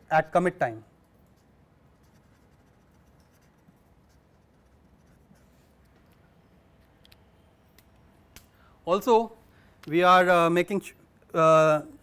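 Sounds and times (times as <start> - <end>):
marker scratching on paper: 1.2 - 6.4.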